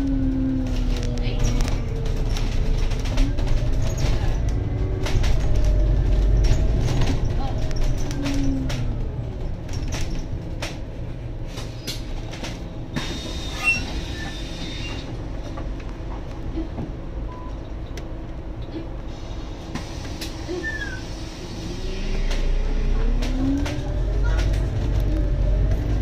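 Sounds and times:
rattles and clicks of bus body: 0.0 - 21.4, 22.0 - 26.0
bus engine and road drone: 0.0 - 26.0
brief high squeal: 20.5 - 21.2.

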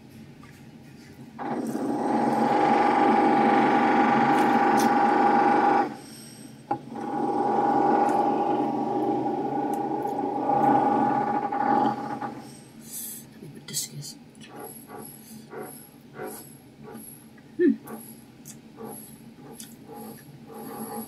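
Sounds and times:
power tool whining: 6.9 - 12.4.

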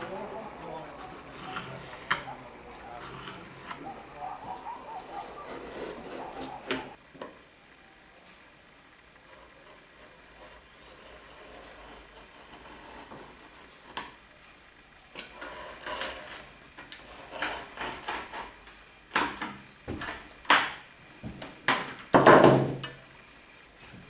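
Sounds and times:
knife scraping veneer: 5.1 - 6.8, 9.3 - 13.9
knock: 22.2 - 22.8.

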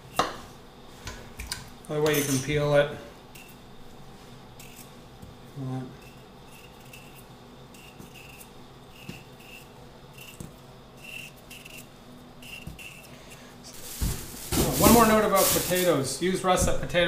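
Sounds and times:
knife scraping potato skin: 3.3 - 3.6, 4.5 - 5.0, 5.9 - 13.5.

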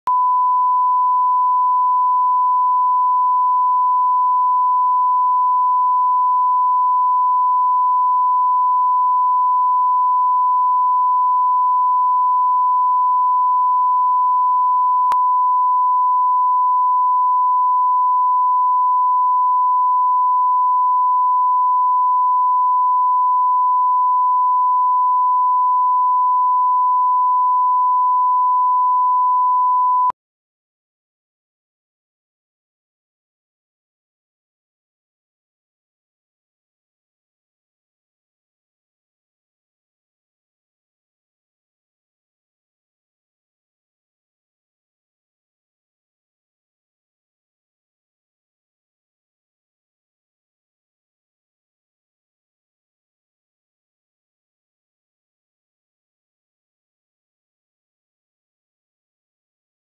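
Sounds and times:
steady sine-wave test tone: 0.1 - 30.2.

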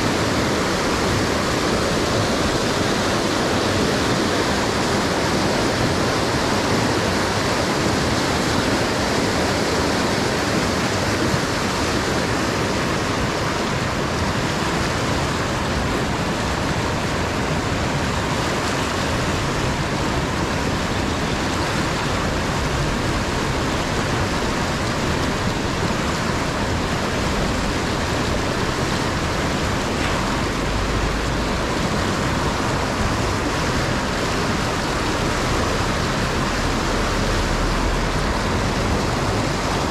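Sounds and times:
river rapids rushing over boulders: 0.0 - 39.9.

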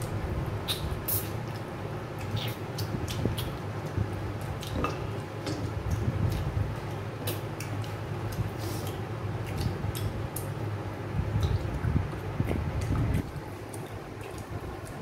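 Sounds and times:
mouth clicks and smacks: 0.0 - 6.5, 7.2 - 10.5, 11.3 - 15.0.

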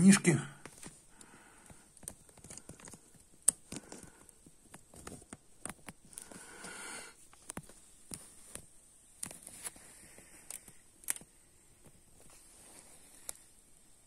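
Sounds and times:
small clicks and taps: 0.6 - 6.4, 7.3 - 12.0
soft rustle: 0.6 - 14.0.

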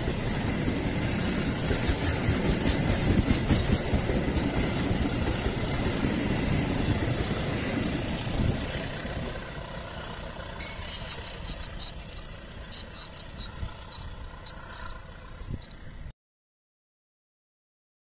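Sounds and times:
train coaches rumbling on rails: 0.0 - 15.8
short high-pitched ticks: 10.8 - 15.0.

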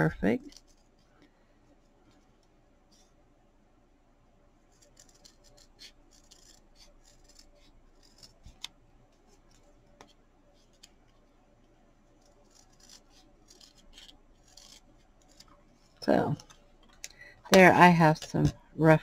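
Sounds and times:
scissors snipping fabric: 4.7 - 8.7, 12.2 - 15.5.

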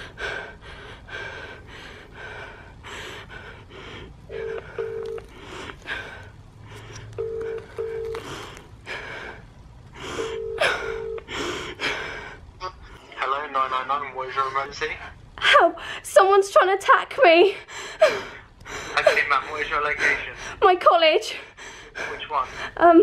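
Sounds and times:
woman breathing hard and crying: 0.0 - 12.5, 17.4 - 20.6, 21.2 - 22.8
telephone ringback tone: 4.3 - 5.3, 7.2 - 8.2, 10.4 - 11.3.

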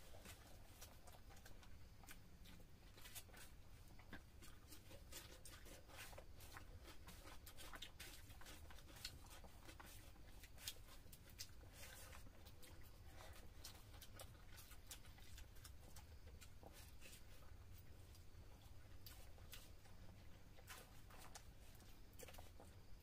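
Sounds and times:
chewing: 0.0 - 23.0
fingers mixing food on plates: 0.0 - 23.0
low steady hum: 0.0 - 23.0.

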